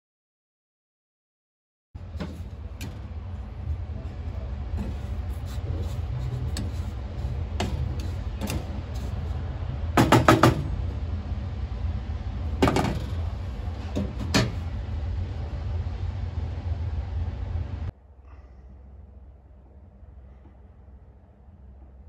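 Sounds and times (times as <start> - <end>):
steady low hum: 2.0 - 22.0
wooden spatula scraping salt: 4.8 - 9.2
wood tapping on metal: 10.0 - 10.7.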